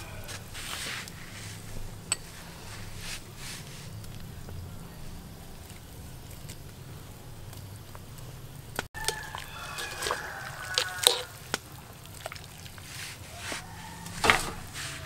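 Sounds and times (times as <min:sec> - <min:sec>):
pot boiling: 0:00.0 - 0:15.0
skimmer clinking against metal pot: 0:09.0 - 0:11.3
water sloshing: 0:09.0 - 0:15.0.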